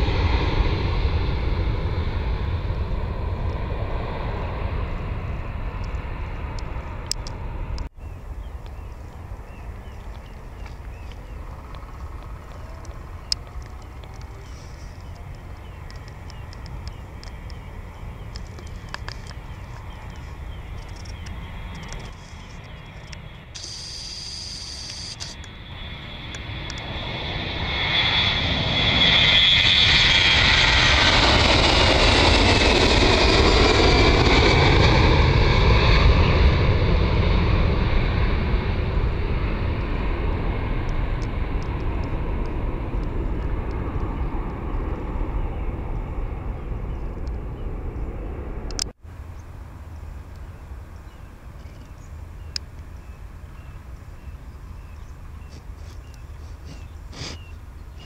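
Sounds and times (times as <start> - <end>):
jet airliner taking off: 0.0 - 58.0
steady jet rumble: 0.0 - 58.0.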